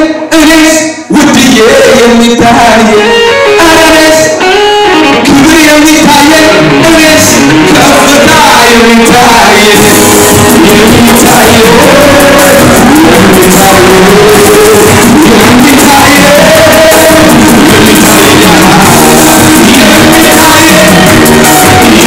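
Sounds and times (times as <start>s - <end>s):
people singing worship song: 7.0s - 22.0s.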